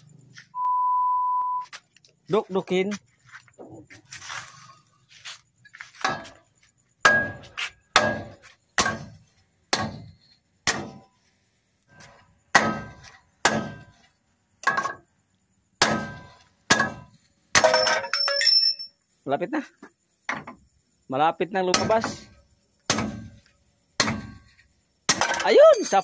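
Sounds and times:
hammer striking metal: 0:07.0 - 0:09.1.

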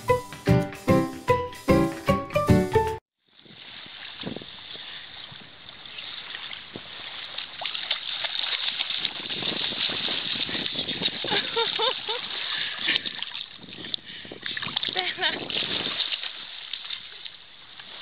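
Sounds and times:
music: 0:00.0 - 0:03.0
water splashing and sloshing: 0:03.3 - 0:18.0.

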